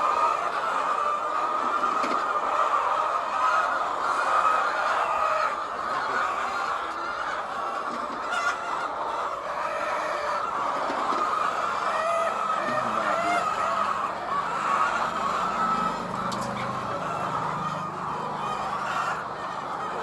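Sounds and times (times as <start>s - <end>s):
hens clucking: 0.0s - 20.0s.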